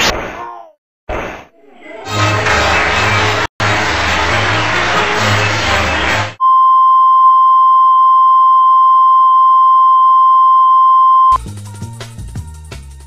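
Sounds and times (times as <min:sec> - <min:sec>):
music: 0:02.1 - 0:06.4, 0:11.4 - 0:13.0.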